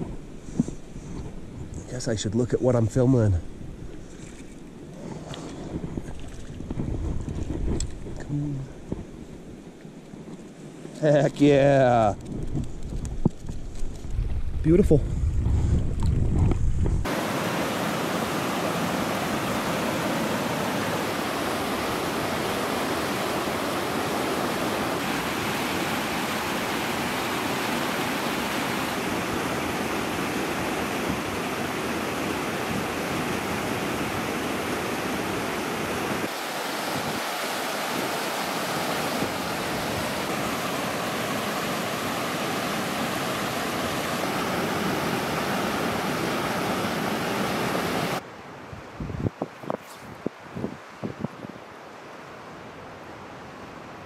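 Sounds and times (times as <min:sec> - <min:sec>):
low rumble of wind on microphone: 0:00.0 - 0:22.4, 0:48.1 - 0:51.8
creek rushing over rocks: 0:17.0 - 0:48.2.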